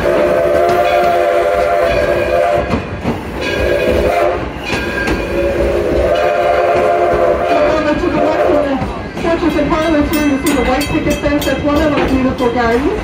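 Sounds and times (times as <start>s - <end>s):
moving train rumble and clicking: 0.0s - 13.0s
steam locomotive chime whistle: 0.0s - 13.0s.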